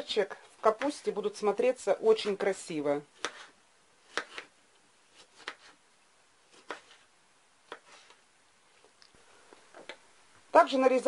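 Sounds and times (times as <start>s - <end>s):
knife cutting tomato: 3.0s - 5.8s, 6.4s - 8.2s.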